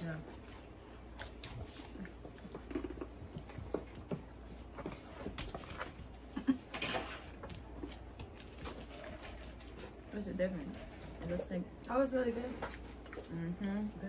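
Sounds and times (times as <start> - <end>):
chewing with mouth clicks: 12.6 - 13.8.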